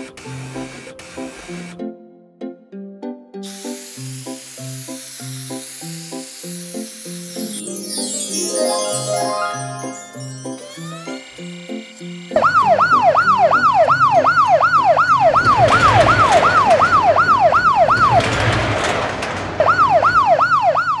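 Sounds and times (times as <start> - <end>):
music notes: 6.9 - 13.9
cartoon police siren wailing: 9.3 - 11.2, 12.4 - 18.2, 19.7 - 21.0.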